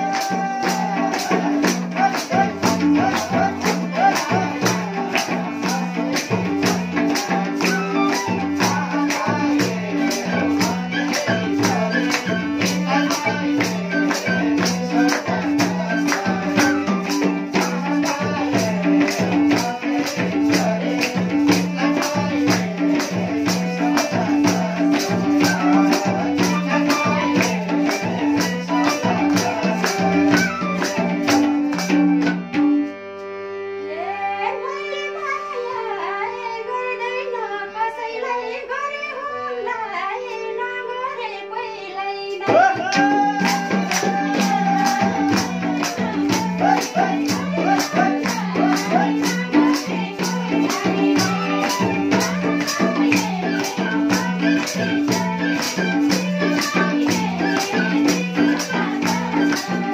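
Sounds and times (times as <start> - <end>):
flute melody: 0.0 - 18.8, 23.8 - 33.1, 51.0 - 59.9
person singing: 0.0 - 32.3, 33.9 - 59.9
hand drum beat: 0.0 - 32.8, 42.4 - 59.9
harmonium: 0.0 - 59.9.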